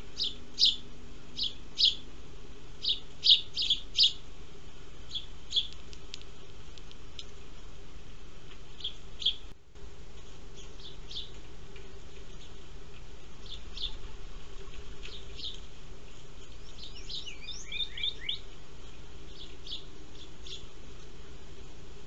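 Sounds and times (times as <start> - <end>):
sparrows chirping: 0.0 - 2.1, 2.7 - 4.3, 5.0 - 6.1, 8.7 - 9.5, 10.1 - 21.8
steady low hum: 0.0 - 22.0.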